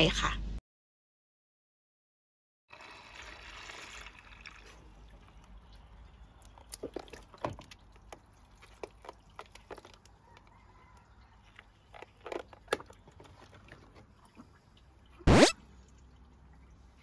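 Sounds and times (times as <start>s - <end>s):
water balloon rubbery squeaks: 15.2s - 15.6s.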